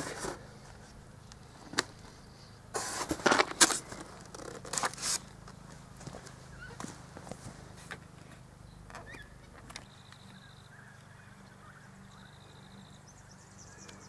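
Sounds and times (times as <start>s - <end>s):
foam box scraping and leaves rustling: 0.0s - 1.0s, 2.7s - 5.4s.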